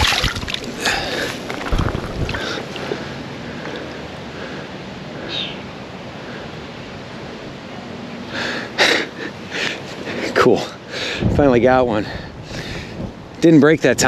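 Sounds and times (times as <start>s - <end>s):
loud rustling: 0.0s - 3.0s
small waves lapping: 0.0s - 3.2s
wind hiss: 0.0s - 7.6s, 8.2s - 13.6s.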